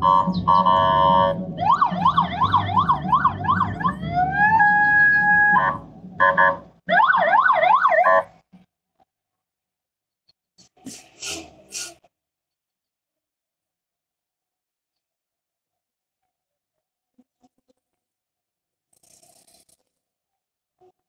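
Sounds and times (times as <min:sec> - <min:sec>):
low engine rumble: 0:00.0 - 0:06.8
electronic siren: 0:00.0 - 0:08.3.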